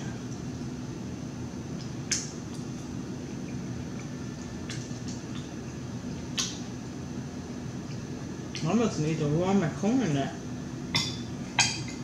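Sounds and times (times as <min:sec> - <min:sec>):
wet mouth smacks: 0:01.8 - 0:02.9.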